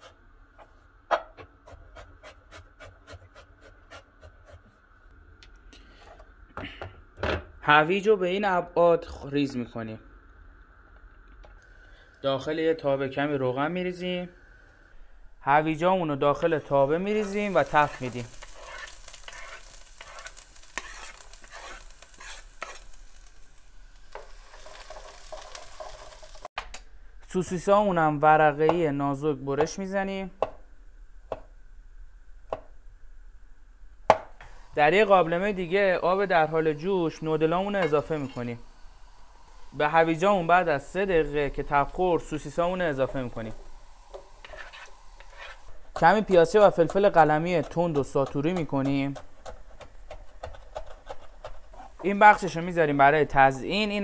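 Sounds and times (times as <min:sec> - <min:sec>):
carrots sizzling in hot oil: 0:16.6 - 0:26.5, 0:34.4 - 0:49.4
spatula tapping and scraping pan: 0:44.1 - 0:51.7.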